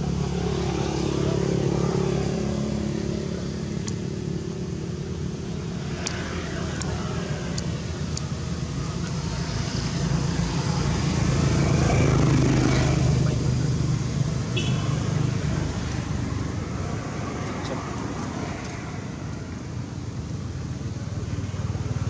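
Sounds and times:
vehicle engine humming: 0.0 - 22.0.

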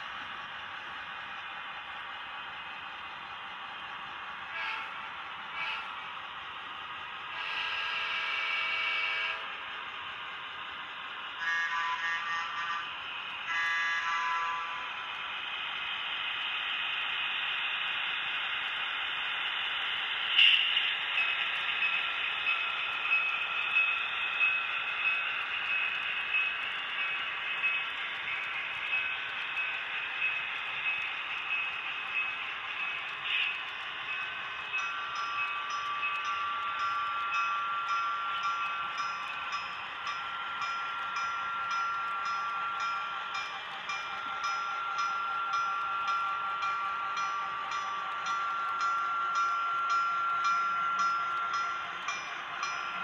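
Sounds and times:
model train whine: 0.0 - 53.0
train wheels clicking: 0.0 - 53.0
model train horn: 4.5 - 6.0, 7.3 - 9.5, 11.4 - 12.9, 13.5 - 14.8.

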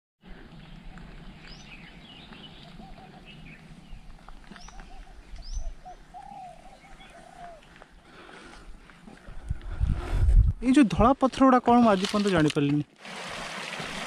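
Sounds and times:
birds chirping and whistling: 0.4 - 8.2.

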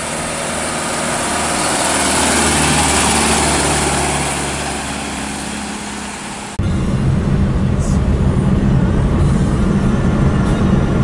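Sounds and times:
diesel truck driving past: 0.0 - 11.0
tyres on road: 0.0 - 11.0.

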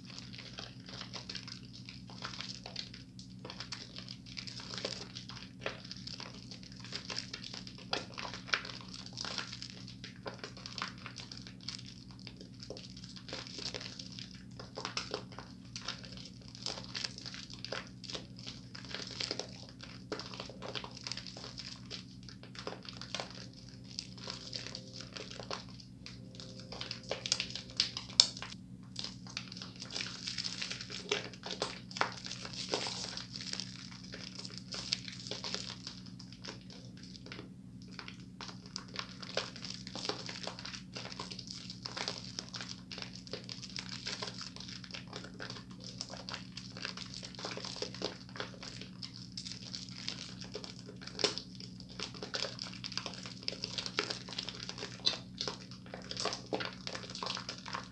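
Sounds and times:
soap lather squishing: 0.0 - 57.9
low hum: 19.8 - 34.7.

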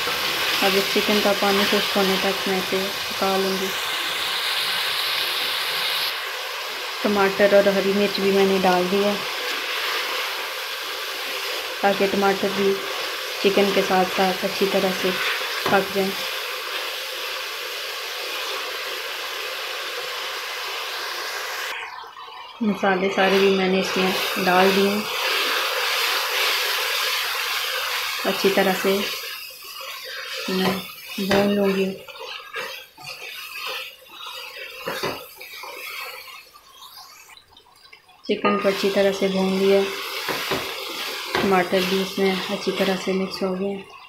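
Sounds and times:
chicken frying: 0.0 - 44.0
food sizzling in oil: 0.0 - 44.0
wooden spatula scraping metal pan: 28.2 - 37.2, 38.4 - 43.6.

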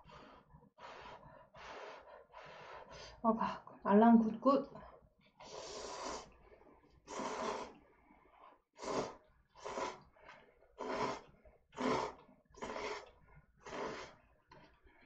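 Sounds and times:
person slurping noodles: 5.4 - 6.4, 7.1 - 7.8, 8.8 - 10.0, 10.8 - 14.2.

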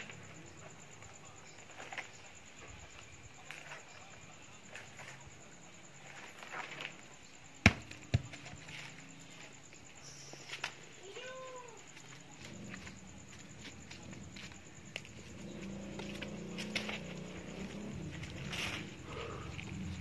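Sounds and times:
rustling and scraping on palm trunk: 11.9 - 20.0.

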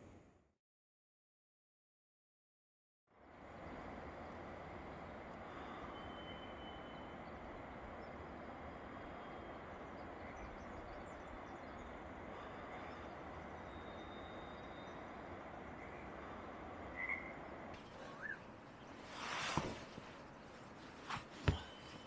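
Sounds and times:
whistled bird notes: 5.6 - 8.2, 9.2 - 16.2, 16.9 - 19.8
steady soft hiss: 17.6 - 22.0.

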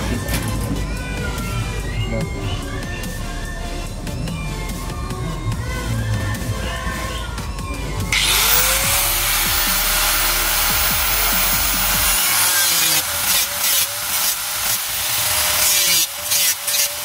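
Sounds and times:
angle grinder cutting sheet steel: 8.1 - 17.0.

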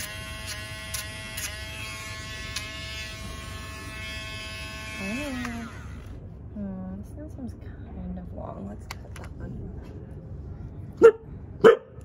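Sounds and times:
rotary tool whining: 0.0 - 6.2.

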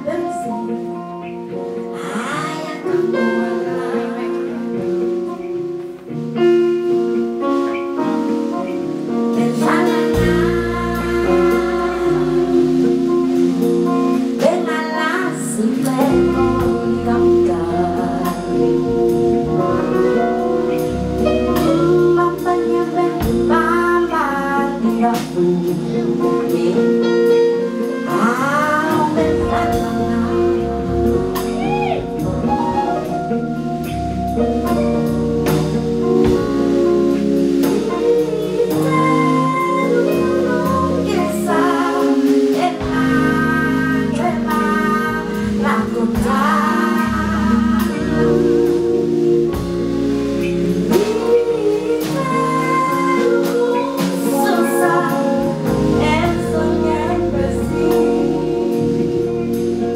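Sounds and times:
woman singing: 0.0 - 5.4, 7.9 - 33.3, 35.4 - 49.7, 50.4 - 59.8
band bass and percussion: 0.0 - 59.9.

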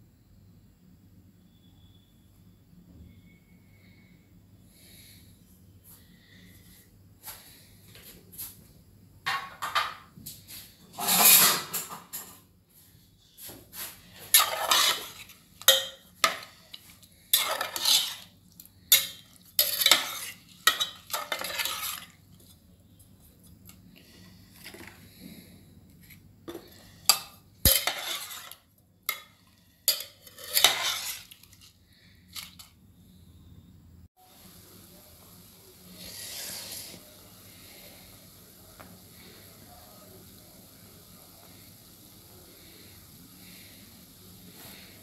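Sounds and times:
metal ladle scraping in pot: 10.9 - 11.8, 14.0 - 22.2, 26.9 - 31.7.

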